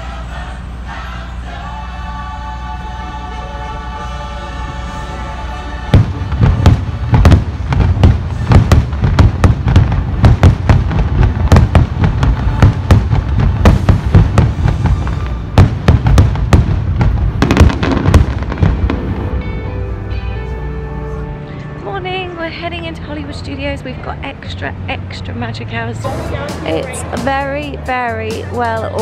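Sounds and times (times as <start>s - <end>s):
fireworks bangs and crackles: 5.9s - 19.6s
low rumbling booms: 5.9s - 20.3s.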